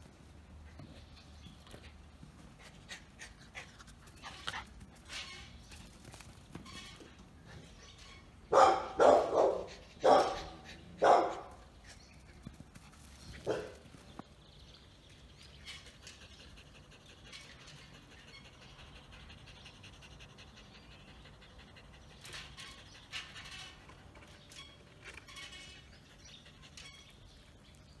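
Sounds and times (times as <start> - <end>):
dog barking: 8.5 - 11.5, 13.5 - 13.8.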